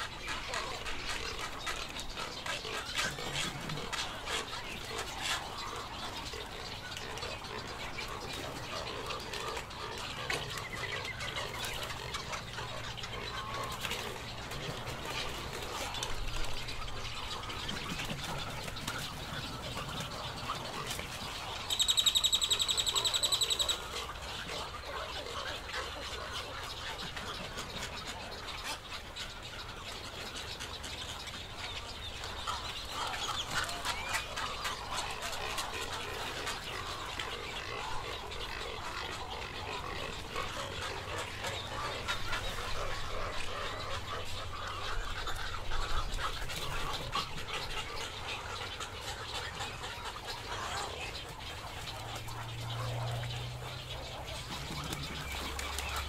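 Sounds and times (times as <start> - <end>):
waterbird colony calling: 0.0 - 56.0
high rapid bird trill: 21.6 - 23.9.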